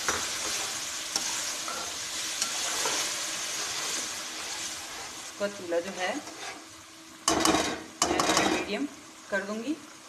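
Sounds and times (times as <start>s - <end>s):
spatula stirring in a pot: 0.0s - 6.7s
lentils sizzling in hot oil: 0.0s - 10.0s.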